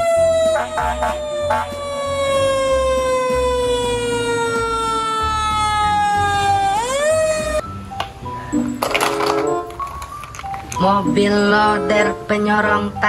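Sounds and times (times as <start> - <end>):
fire engine siren winding: 0.0 - 7.6.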